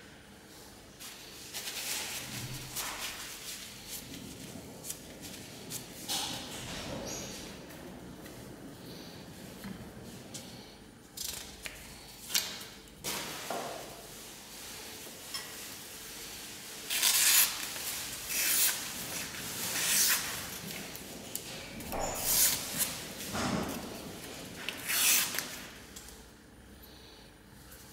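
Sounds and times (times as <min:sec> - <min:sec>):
blade slicing paper: 0:16.9 - 0:18.9, 0:24.8 - 0:25.6.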